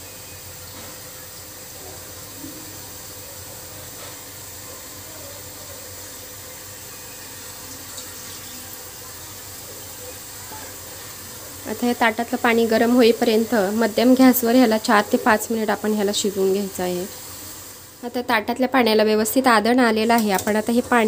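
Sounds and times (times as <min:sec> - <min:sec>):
water pouring onto a metal plate: 0:06.9 - 0:11.6.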